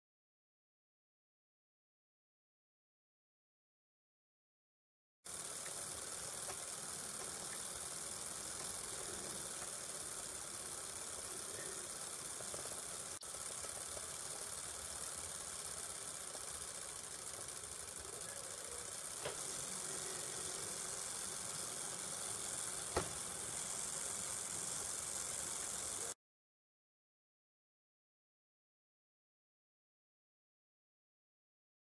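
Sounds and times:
small electric motor whirring: 5.3 - 26.2.

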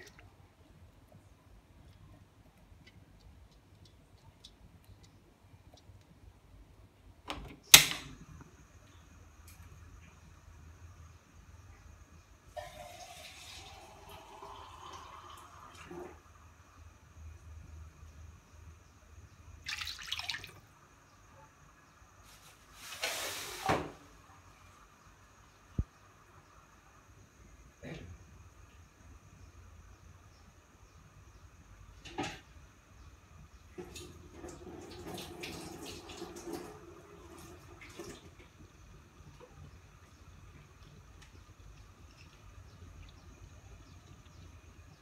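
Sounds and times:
low steady hum: 24.0 - 45.0.

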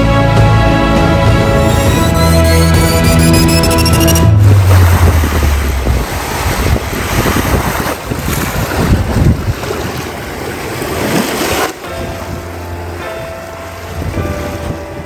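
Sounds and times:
sea surf rushing: 0.9 - 15.0
wind buffeting microphone: 4.3 - 15.0.

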